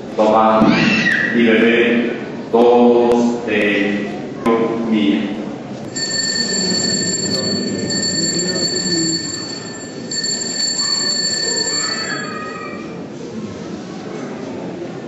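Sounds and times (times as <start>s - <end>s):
high-pitched bell ringing: 5.9s - 13.0s.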